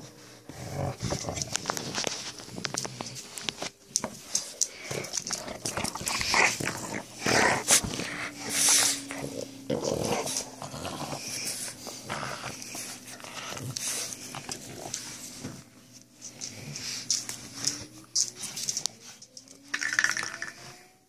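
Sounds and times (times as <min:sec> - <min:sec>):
dogs growling while playing: 0:00.0 - 0:15.6.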